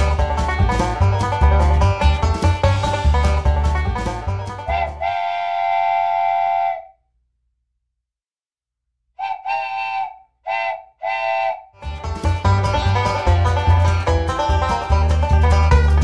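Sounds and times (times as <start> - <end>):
wooden train whistle blasts: 4.6 - 7.0, 9.2 - 11.7.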